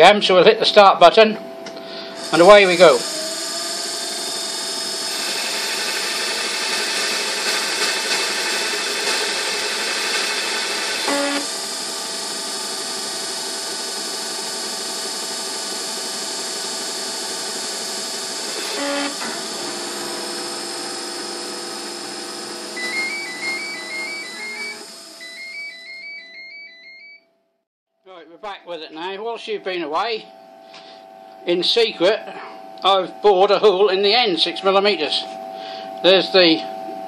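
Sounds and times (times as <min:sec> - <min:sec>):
brief machine whirs: 0:01.8 - 0:27.3
lathe machine hum: 0:02.2 - 0:26.5.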